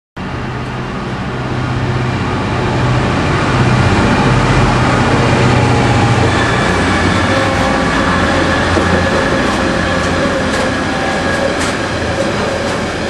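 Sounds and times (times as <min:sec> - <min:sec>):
diesel locomotive passing: 0:00.2 - 0:13.0.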